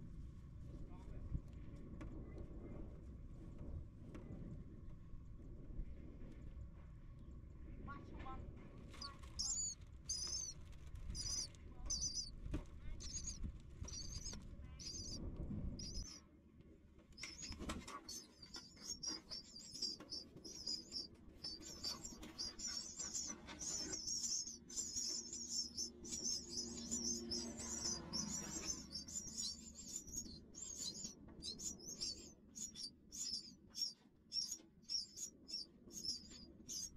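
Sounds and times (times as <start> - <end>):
low rumble: 0.0 - 16.2, 17.2 - 36.9
nestlings cheeping: 8.9 - 15.2, 15.8 - 16.2, 17.2 - 36.9.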